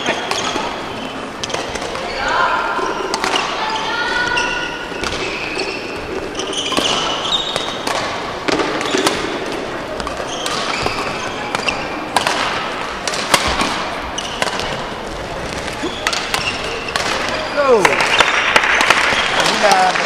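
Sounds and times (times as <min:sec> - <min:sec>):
background murmur: 0:00.0 - 0:20.0
shoes squeaking on court floor: 0:00.0 - 0:20.0
racket striking shuttlecock: 0:03.0 - 0:03.6, 0:05.0 - 0:19.6.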